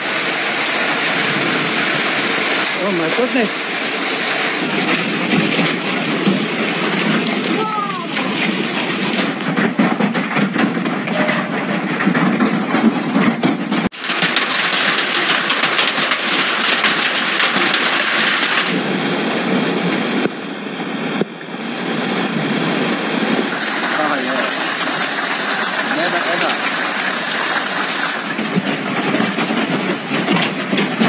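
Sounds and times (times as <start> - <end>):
hail and heavy rain: 0.0 - 31.0.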